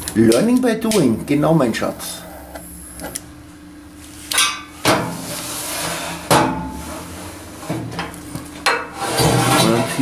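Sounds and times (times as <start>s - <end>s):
metal scrape: 5.2s - 7.7s, 8.9s - 10.0s.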